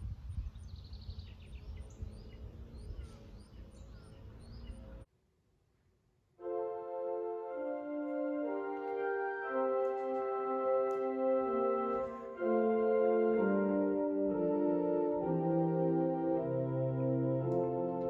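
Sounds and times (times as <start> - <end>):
birds chirping: 0.0 - 5.1
church organ chords: 6.4 - 18.0.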